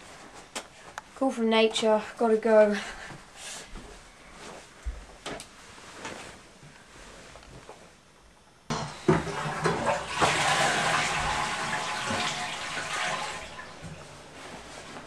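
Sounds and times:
toilet flushing: 8.7s - 14.3s.

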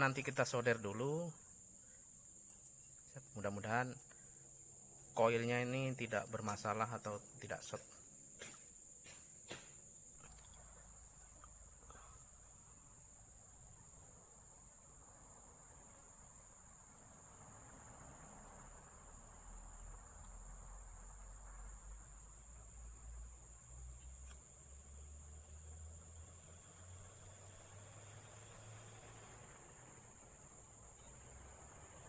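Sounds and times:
faint clicks: 2.4s - 3.1s.

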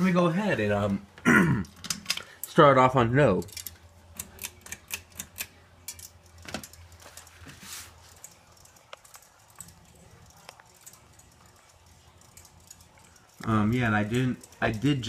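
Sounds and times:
ceiling fan motor humming: 0.0s - 15.0s
light clicks and rattles: 3.3s - 15.0s.

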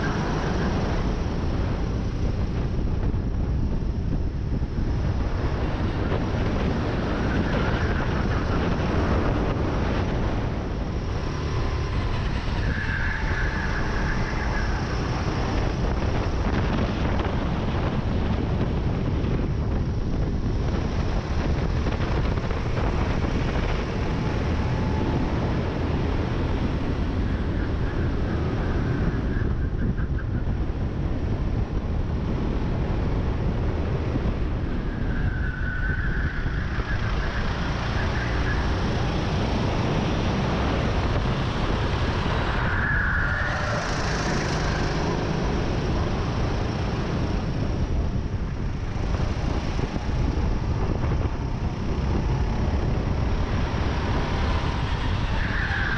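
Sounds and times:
wind buffeting on microphone: 0.0s - 55.9s
kart engine running hard: 37.1s - 55.9s.

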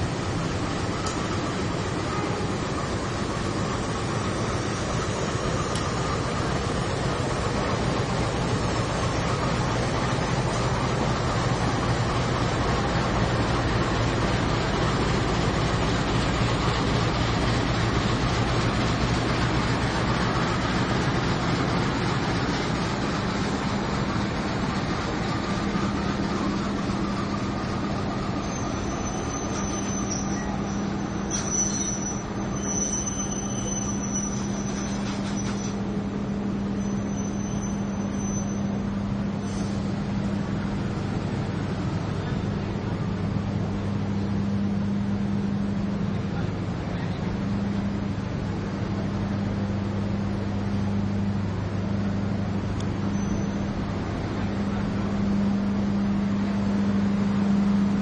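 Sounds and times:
coaches rolling on rails: 0.0s - 58.0s
locomotive engine hum: 0.0s - 58.0s
high squeal from running gear: 28.4s - 35.8s, 36.7s - 39.8s, 53.1s - 53.7s.

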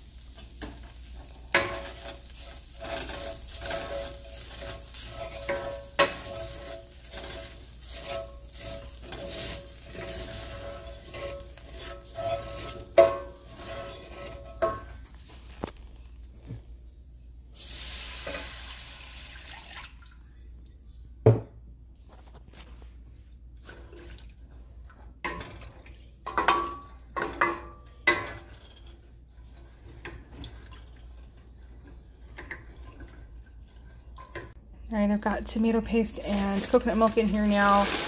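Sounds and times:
steady hiss: 0.0s - 13.5s
utensils clinking against pots: 1.5s - 15.1s, 26.3s - 28.9s, 35.9s - 38.0s.

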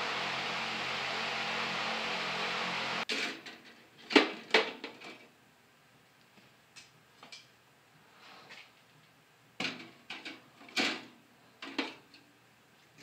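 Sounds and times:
steady hiss: 0.0s - 3.1s.

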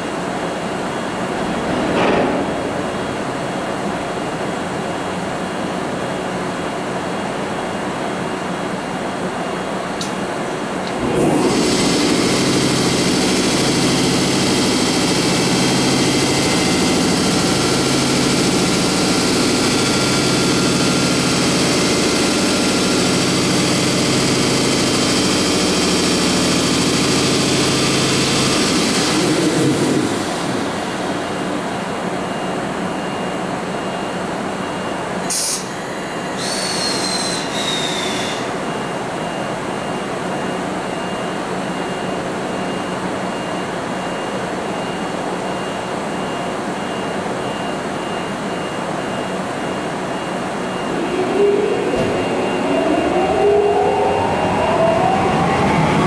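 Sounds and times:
locomotive machinery hum and whine: 0.0s - 56.0s
high falling whistle: 50.1s - 56.0s.

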